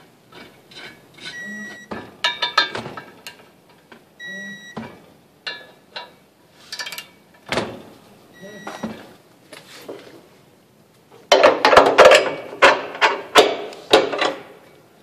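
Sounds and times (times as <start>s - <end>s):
short steady beeps: 1.3s - 1.9s, 4.2s - 4.8s, 8.3s - 9.0s.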